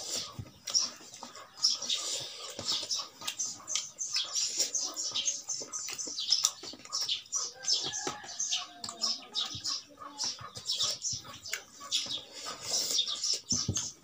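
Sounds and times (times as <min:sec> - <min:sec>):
wet chewing and lip smacks: 0:00.1 - 0:09.1.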